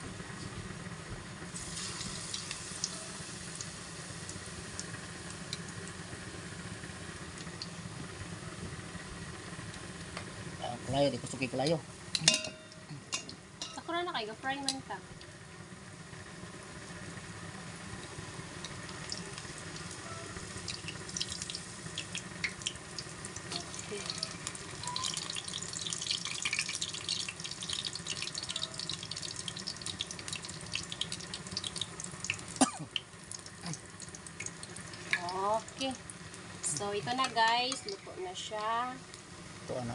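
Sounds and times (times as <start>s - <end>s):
battered leaves deep-frying in oil: 0.0s - 39.9s
metal tongs clicking on wok: 12.2s - 13.8s.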